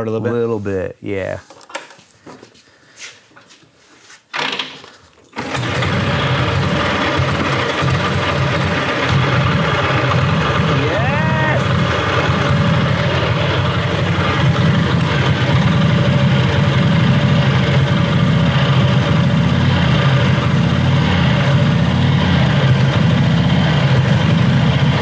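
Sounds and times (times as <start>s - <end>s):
motorcycle engine idling: 5.5s - 25.0s.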